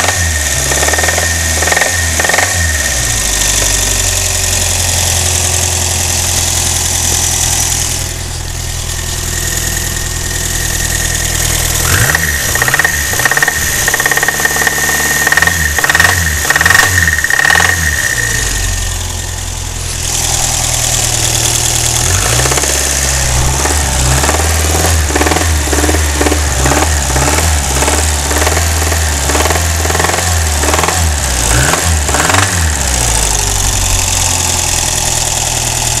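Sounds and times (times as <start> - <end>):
car engine clattering: 0.0 - 36.0.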